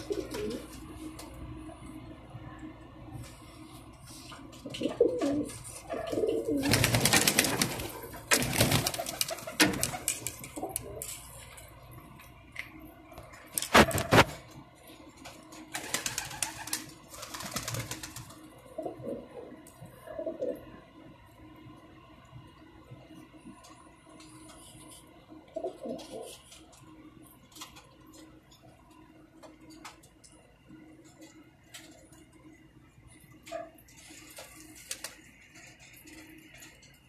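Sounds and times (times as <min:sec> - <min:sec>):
pigeons cooing: 0:00.0 - 0:00.8, 0:04.6 - 0:11.2, 0:18.8 - 0:20.7, 0:25.6 - 0:26.4
wings flapping: 0:04.7 - 0:10.9, 0:15.7 - 0:18.4, 0:34.2 - 0:35.3.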